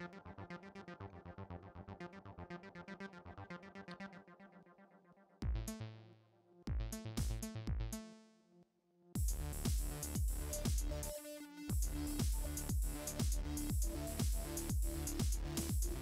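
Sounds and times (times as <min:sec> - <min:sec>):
loud drum hits with deep bass: 0:09.2 - 0:10.9
fast synthesizer notes: 0:11.7 - 0:16.0.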